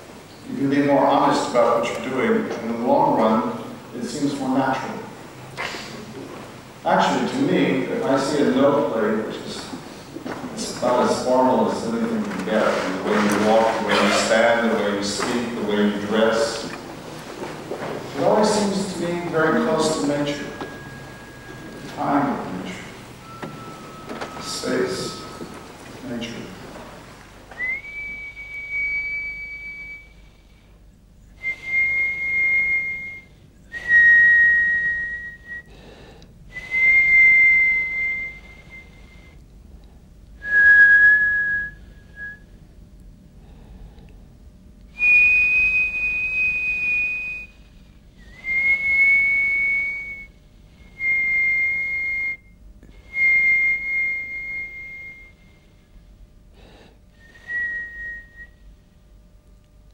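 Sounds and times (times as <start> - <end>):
high whistled notes: 18.1 - 26.8, 27.5 - 30.2, 45.0 - 47.6, 48.2 - 55.5, 57.2 - 58.6.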